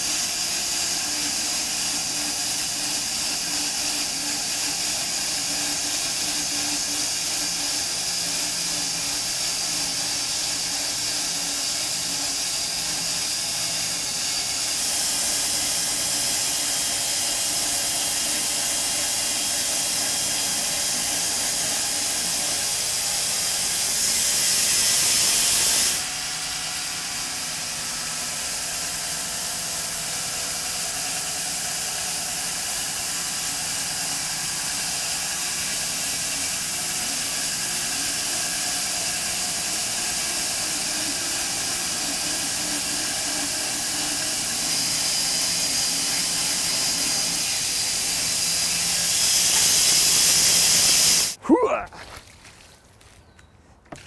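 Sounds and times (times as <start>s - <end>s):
bandsaw mill sawing log: 0.0s - 51.4s
hiss of sawdust: 21.6s - 26.9s, 30.4s - 51.4s.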